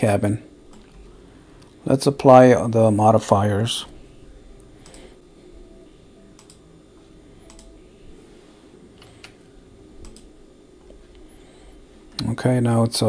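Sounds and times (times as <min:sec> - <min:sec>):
faint background hum: 0:00.0 - 0:13.0
keyboard and mouse clicks: 0:06.4 - 0:06.6, 0:07.5 - 0:07.7, 0:10.0 - 0:10.3.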